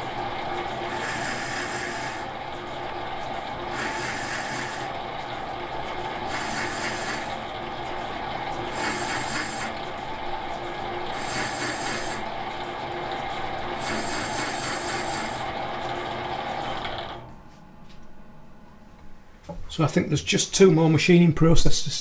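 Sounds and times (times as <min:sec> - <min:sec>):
lathe motor and spindle hum: 0:00.0 - 0:17.5
hissing cutting noise: 0:00.9 - 0:02.3, 0:03.7 - 0:04.9, 0:06.3 - 0:07.4, 0:08.8 - 0:09.8, 0:11.2 - 0:12.2.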